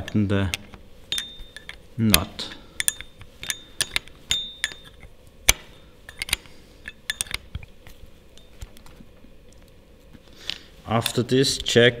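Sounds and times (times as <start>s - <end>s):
spanner clicking on metal nut: 0.0s - 7.6s.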